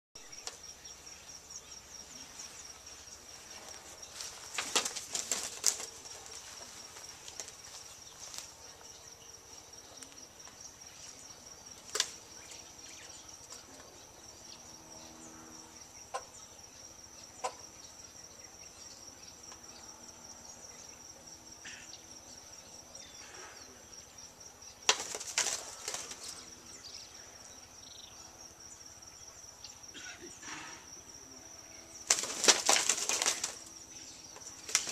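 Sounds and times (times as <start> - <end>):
high insect trill: 0.2 - 34.9
wings flapping: 3.6 - 8.6, 11.8 - 12.6, 24.9 - 26.5, 32.0 - 33.8, 34.4 - 34.9.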